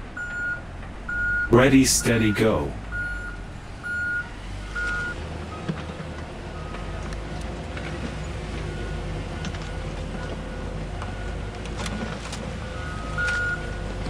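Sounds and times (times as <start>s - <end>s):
high warning beeps: 0.4s - 4.2s.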